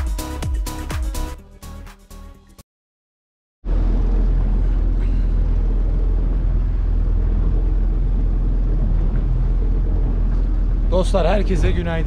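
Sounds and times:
boat engine rumbling: 3.6s - 12.0s.

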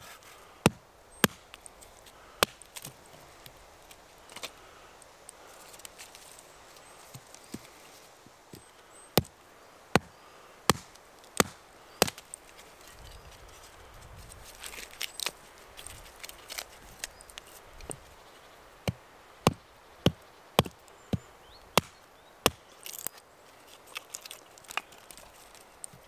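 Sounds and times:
axe chopping log: 0.6s - 1.6s, 2.4s - 2.9s, 9.9s - 10.1s, 10.7s - 12.2s, 18.8s - 23.1s.

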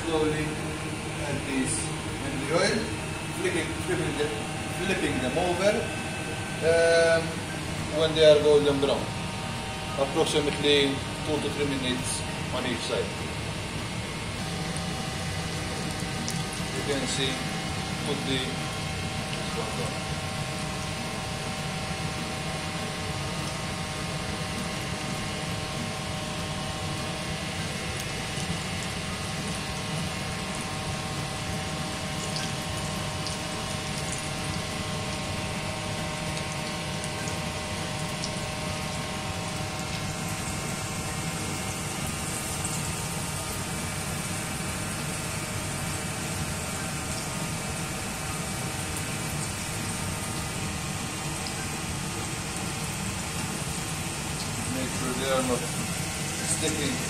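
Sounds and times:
constant background hum: 0.0s - 57.0s
food sizzling in hot oil: 27.0s - 57.0s.

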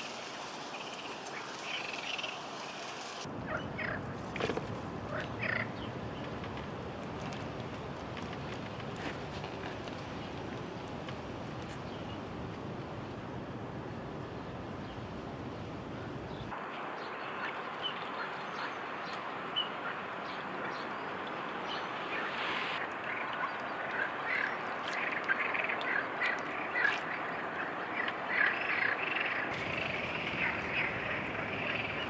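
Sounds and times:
steady hiss: 0.0s - 3.4s, 15.2s - 23.8s, 29.1s - 32.0s.

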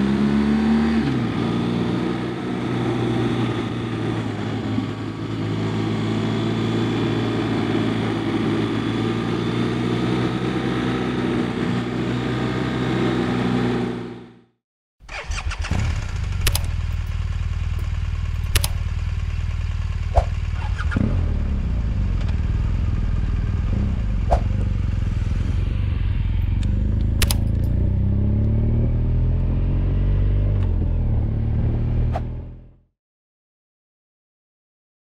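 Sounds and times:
motorcycle engine running: 15.1s - 32.6s
sharp clicks: 16.4s - 16.8s, 18.4s - 18.8s, 26.5s - 27.7s.

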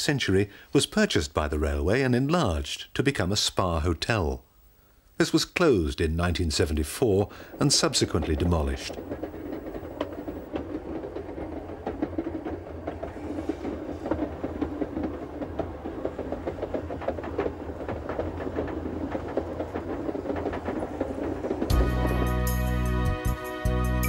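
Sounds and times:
train low rumble: 6.4s - 24.0s
wheel and track clicks: 7.4s - 22.6s.

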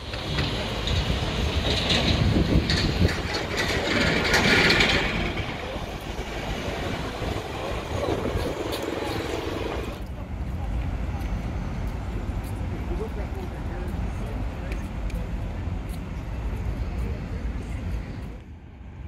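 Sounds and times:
vehicle passing with rattling clatter: 0.0s - 10.2s.

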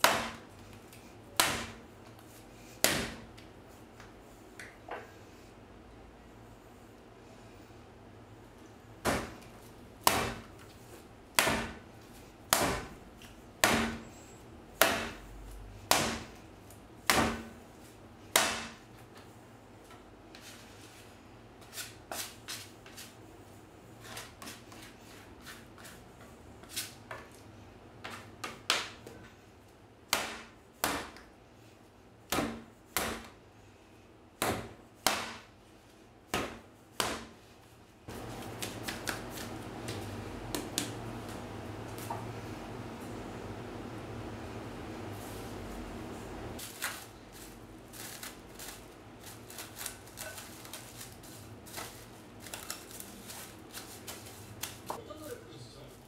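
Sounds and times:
dough slapped on countertop: 36.3s - 37.4s.

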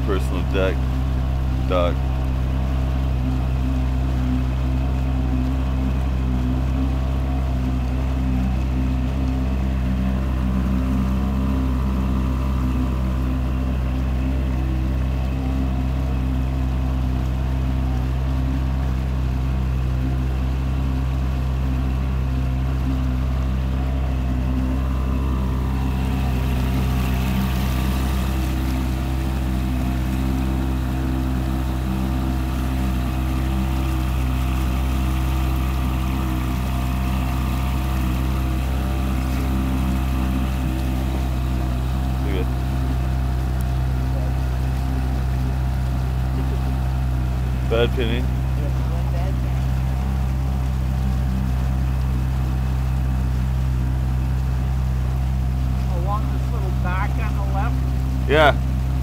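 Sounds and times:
boat engine droning: 0.0s - 59.0s.

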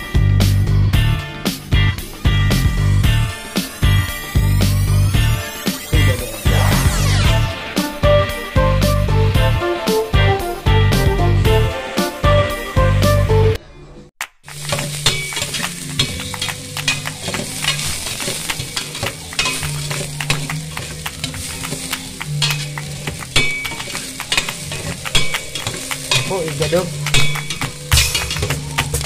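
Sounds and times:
onions sizzling in oil: 3.0s - 8.5s, 14.5s - 29.0s
spatula scraping metal pot: 16.9s - 26.4s.

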